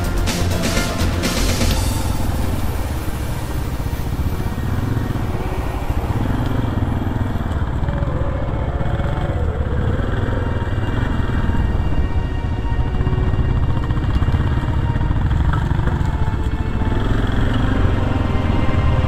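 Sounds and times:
motorcycle engines chugging: 0.0s - 19.0s.

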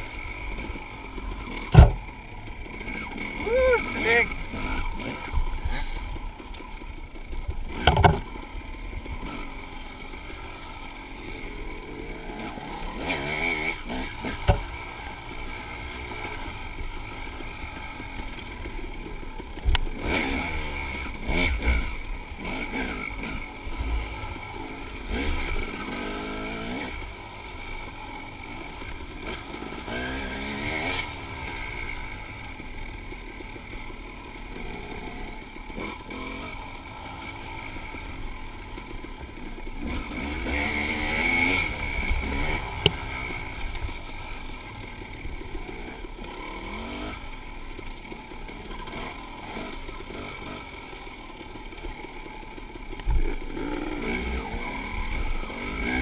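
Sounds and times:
dirt bike engine revving: 0.0s - 56.0s
sharp knocks: 1.7s - 2.0s.

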